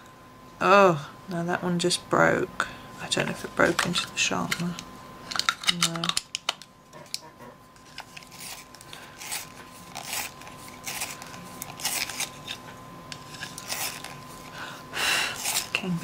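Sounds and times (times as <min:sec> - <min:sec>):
pencil sharpener scraping: 0:08.0 - 0:14.5, 0:15.3 - 0:15.9.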